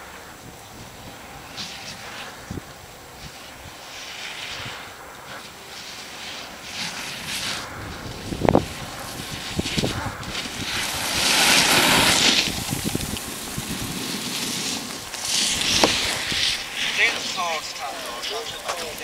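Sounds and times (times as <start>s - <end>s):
wind buffeting microphone: 0.0s - 5.7s, 6.5s - 19.0s
snowboard carving through snow: 0.0s - 19.0s.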